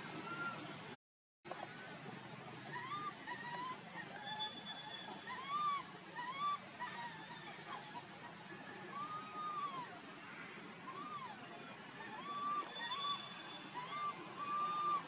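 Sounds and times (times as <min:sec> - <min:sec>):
macaque coo calls: 0:00.0 - 0:00.7, 0:02.6 - 0:10.2, 0:10.8 - 0:15.0.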